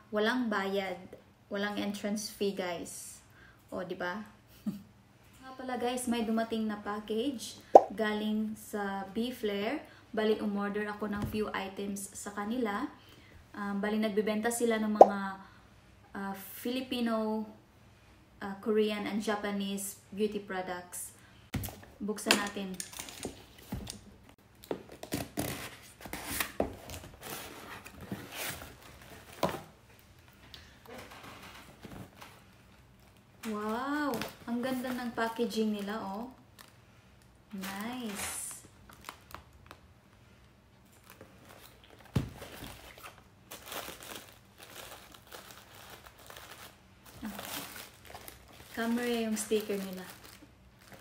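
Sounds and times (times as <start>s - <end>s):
tissue paper crinkling: 40.9s - 51.0s.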